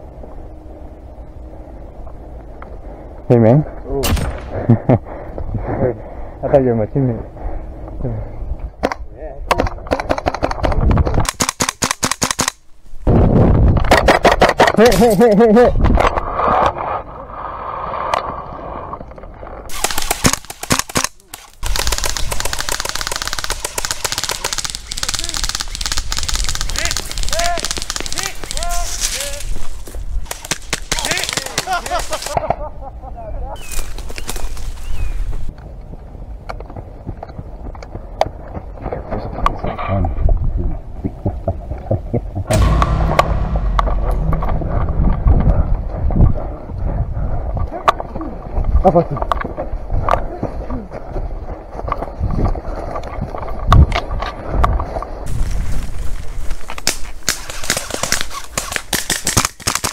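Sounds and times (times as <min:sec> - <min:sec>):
airsoft gun pops: 0:08.8 - 0:12.6, 0:19.8 - 0:24.6
airsoft rifle firing: 0:11.2 - 0:12.6, 0:19.7 - 0:28.5
low rumble of camera moving: 0:35.2 - 0:48.8.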